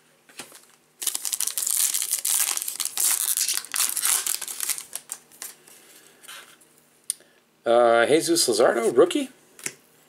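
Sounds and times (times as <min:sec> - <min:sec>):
wrapper crinkling and tearing: 0:00.4 - 0:05.6.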